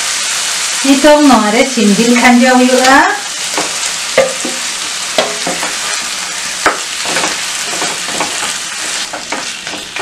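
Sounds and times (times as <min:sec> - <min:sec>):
chicken sizzling in a frying pan: 0:00.0 - 0:10.0
pieces knocking into pan: 0:03.5 - 0:06.0, 0:06.6 - 0:10.0
spatula stirring: 0:05.2 - 0:10.0.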